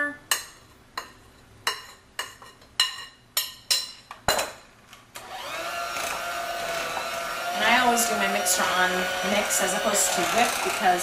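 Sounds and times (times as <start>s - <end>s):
spoon clinking against bowls: 0.3s - 4.5s
electric hand mixer running: 5.2s - 11.0s.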